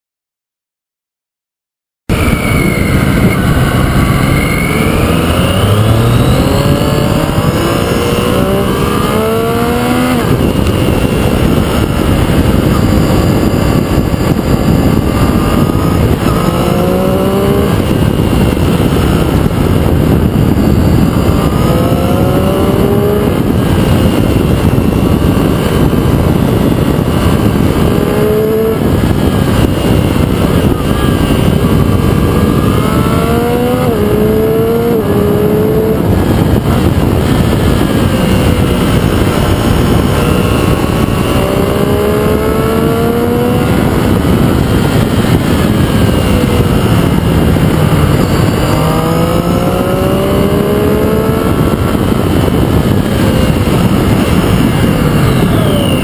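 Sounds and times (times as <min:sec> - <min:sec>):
loud wind rush: 0:02.1 - 0:56.0
motorcycle engine accelerating: 0:02.1 - 0:56.0.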